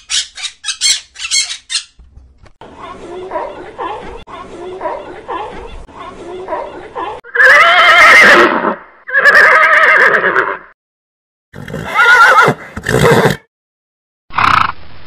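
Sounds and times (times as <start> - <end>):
horse whinnying: 7.3 - 10.8, 11.6 - 13.4.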